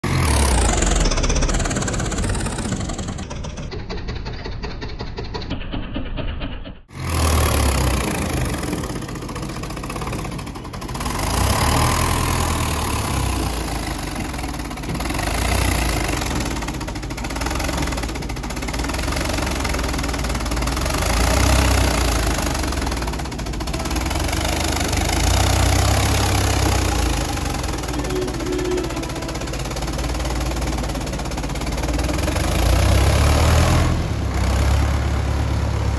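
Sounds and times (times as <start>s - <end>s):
tractor diesel engine under load: 0.0s - 35.9s.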